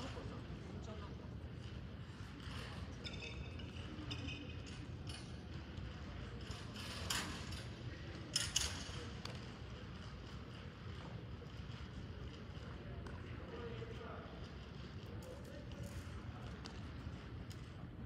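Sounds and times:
faint squeaks: 0:02.0 - 0:05.0.

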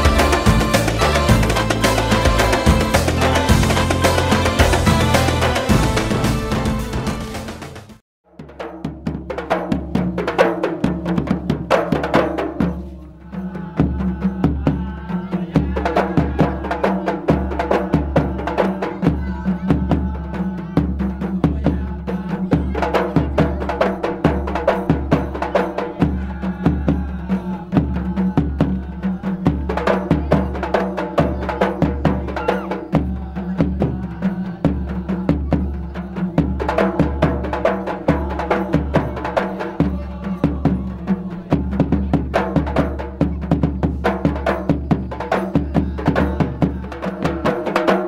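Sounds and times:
bass drum: 0:00.0 - 0:13.1
frame drums beaten by hand: 0:00.0 - 0:48.0.

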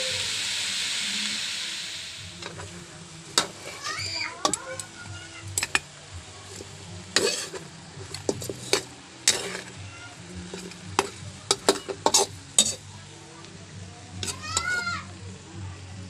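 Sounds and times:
light sizzle: 0:00.0 - 0:16.0
metal spatula scraping wok: 0:02.2 - 0:12.9, 0:14.2 - 0:15.0.

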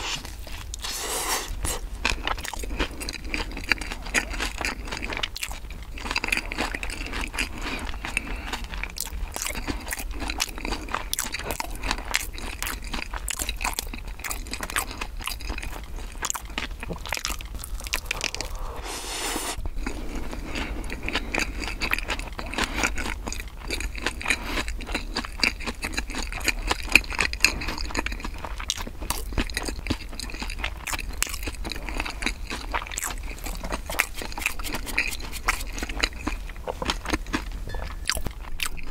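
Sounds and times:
chewing crunchy bread: 0:00.0 - 0:18.8, 0:19.6 - 0:38.9
short breathy hiss: 0:18.5 - 0:19.6.

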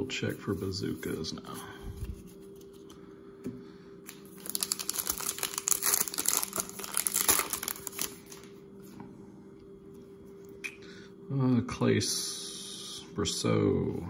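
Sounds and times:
cards being handled: 0:04.1 - 0:08.5
foil wrapper crinkling: 0:04.1 - 0:08.5.

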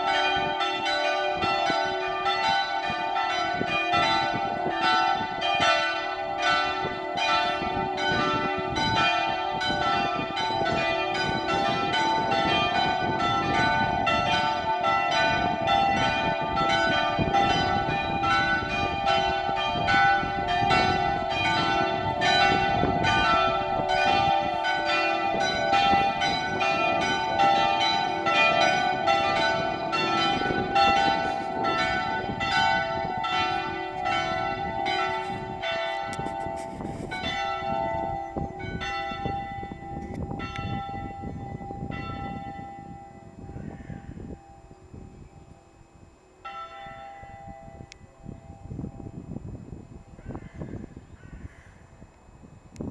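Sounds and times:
church bells pealing: 0:00.0 - 0:52.4.

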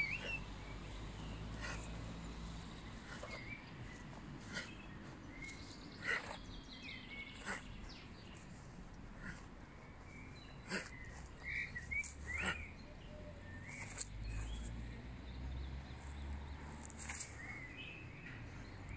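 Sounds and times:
small birds chirping: 0:00.0 - 0:18.9.

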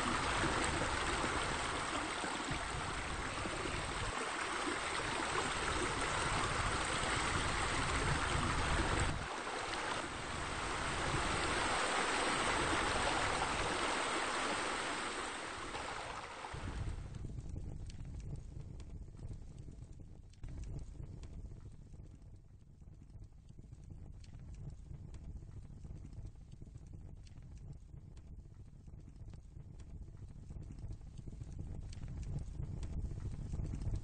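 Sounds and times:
flowing splashing water: 0:00.0 - 0:17.0.

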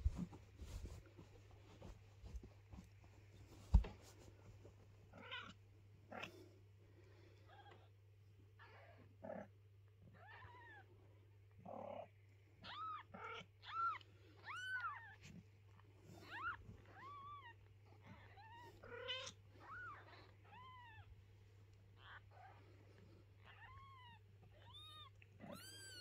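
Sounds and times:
kittens mewing: 0:23.4 - 0:26.0.

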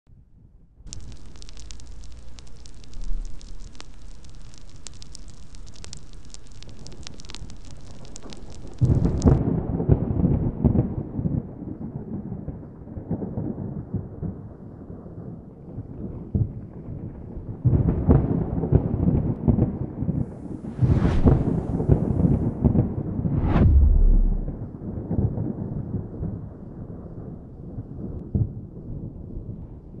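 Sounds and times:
fire crackling: 0:00.9 - 0:09.4, 0:20.3 - 0:24.7
thunderclap rolling rumble: 0:20.6 - 0:25.3.

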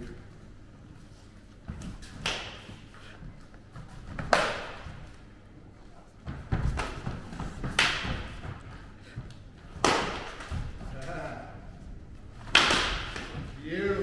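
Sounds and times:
sticks hitting helmets and bodies: 0:01.7 - 0:02.9, 0:04.0 - 0:05.1, 0:06.2 - 0:08.7, 0:09.6 - 0:11.3, 0:12.4 - 0:14.0.

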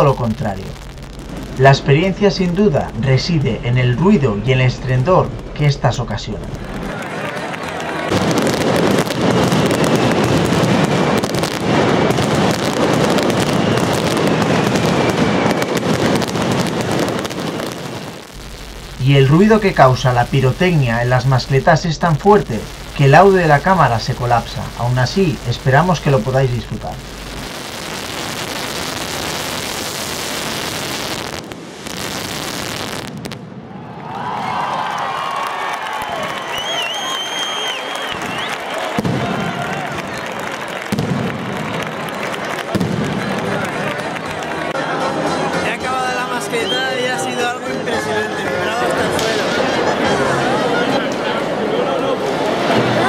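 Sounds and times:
firecrackers barrage of rapid bangs: 0:00.0 - 0:02.0, 0:06.4 - 0:33.8, 0:35.8 - 0:44.7.

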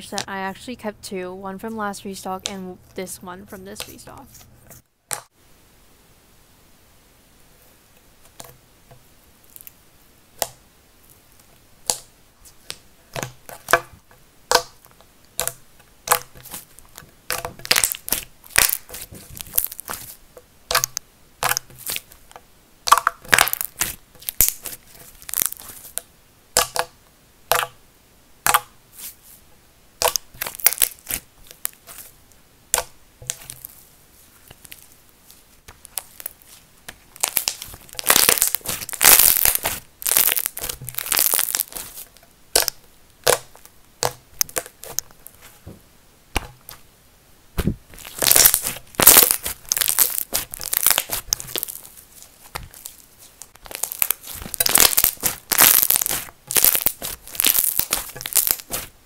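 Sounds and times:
slime clicking and crackling: 0:09.4 - 0:09.8, 0:11.4 - 0:13.9, 0:14.5 - 0:26.9, 0:27.5 - 0:27.8, 0:28.4 - 0:29.1, 0:30.0 - 0:32.1, 0:32.7 - 0:33.8, 0:34.4 - 0:45.5, 0:47.6 - 0:59.0.

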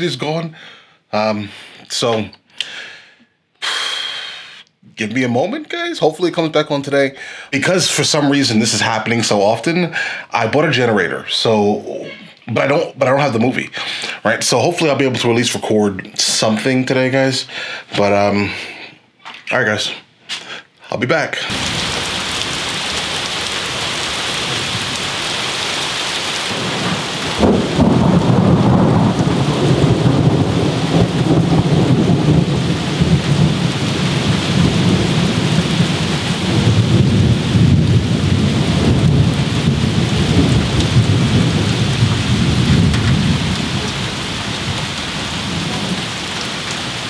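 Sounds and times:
heavy rain: 0:06.2 - 0:15.7, 0:21.4 - 0:47.0
thunder rumbling: 0:21.5 - 0:25.2, 0:26.4 - 0:47.0.

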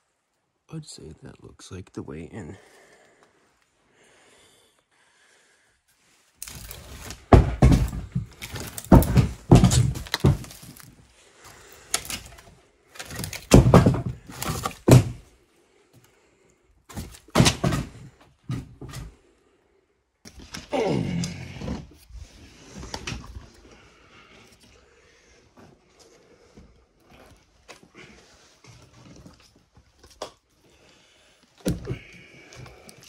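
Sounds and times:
firewood logs knocking together: 0:06.4 - 0:15.3, 0:16.9 - 0:19.1, 0:31.6 - 0:33.0.

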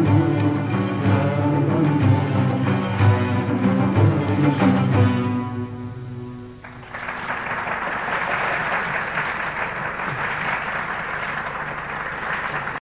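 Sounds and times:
audience applause: 0:06.6 - 0:12.8.

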